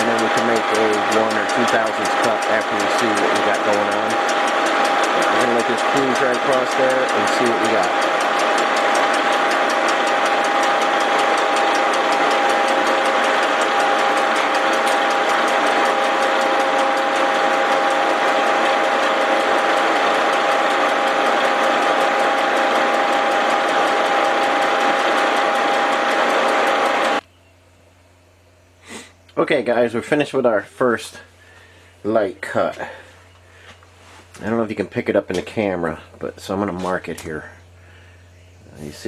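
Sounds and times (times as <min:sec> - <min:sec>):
cutter ticking on metal: 0:00.0 - 0:27.2
milling machine whirring hum: 0:00.0 - 0:39.0.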